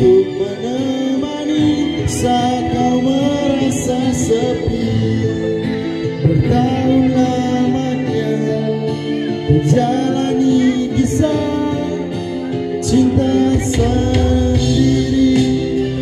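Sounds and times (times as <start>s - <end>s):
guitar music: 0.0s - 16.0s
man singing into microphone: 0.0s - 16.0s.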